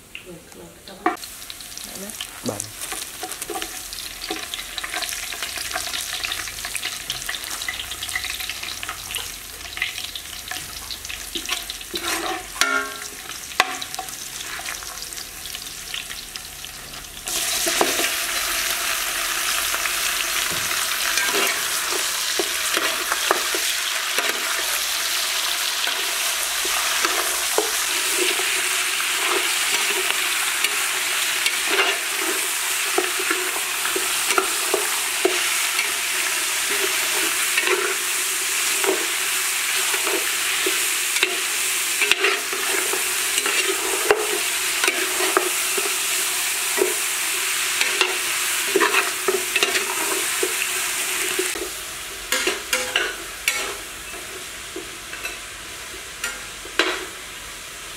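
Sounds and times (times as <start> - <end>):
meat sizzling in oil: 1.0 - 57.9
metal spatula scraping pot: 11.4 - 14.8, 20.3 - 24.6, 39.8 - 45.9, 52.3 - 53.8.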